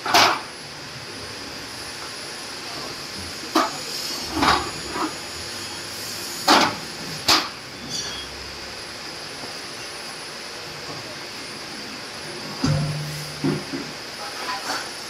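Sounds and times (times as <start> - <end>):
steady hiss: 1.4 - 15.0
metal scaffold parts knocking: 12.6 - 13.8.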